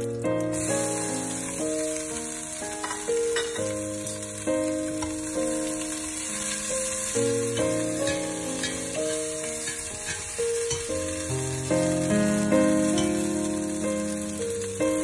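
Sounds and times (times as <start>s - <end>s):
food sizzling in oil: 0.0s - 15.0s
slow background music: 0.0s - 15.0s
chopsticks stirring in a pot: 6.1s - 11.3s.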